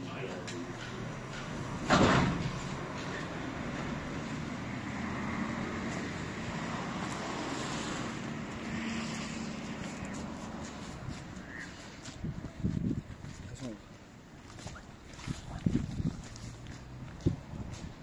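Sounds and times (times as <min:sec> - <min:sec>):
motor vehicle noise: 0:00.0 - 0:18.0
loud thump: 0:01.8 - 0:02.6.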